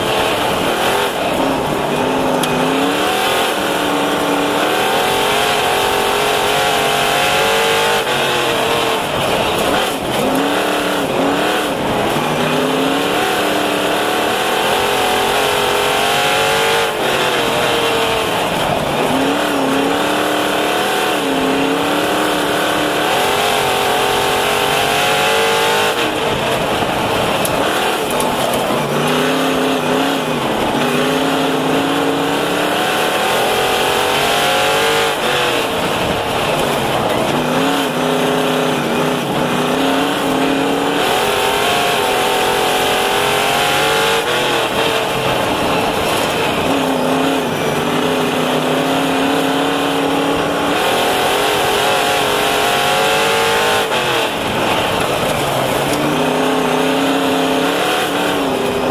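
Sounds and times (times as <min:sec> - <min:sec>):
race car engine revving: 0:00.0 - 0:58.9.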